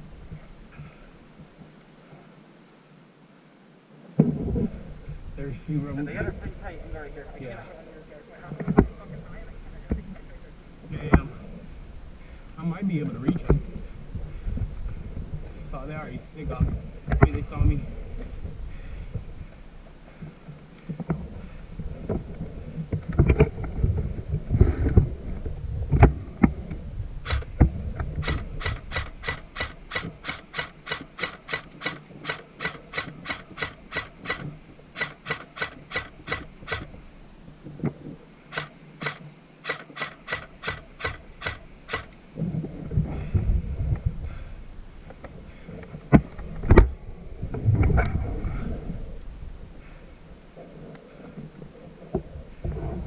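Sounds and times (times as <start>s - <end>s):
handling rustle: 0.0s - 2.0s
ratcheting clicks: 27.3s - 27.6s, 28.2s - 37.0s, 38.5s - 42.2s.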